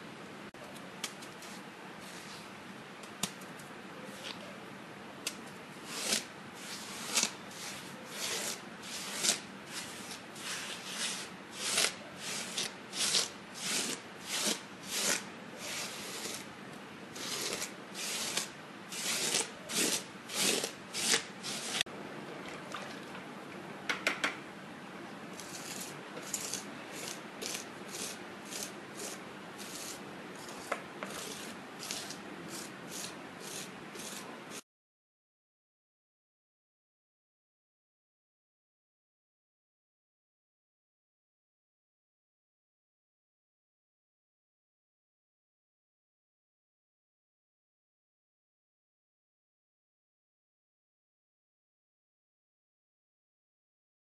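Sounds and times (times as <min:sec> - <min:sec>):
trowel scraping plaster: 0:05.8 - 0:16.5, 0:17.1 - 0:21.9, 0:25.4 - 0:34.6.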